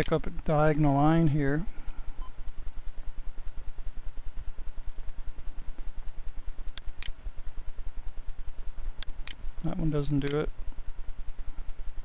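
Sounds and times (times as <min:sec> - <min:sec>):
low fluttering buzzing hum: 0:00.0 - 0:12.0
computer mouse clicks: 0:09.0 - 0:10.5.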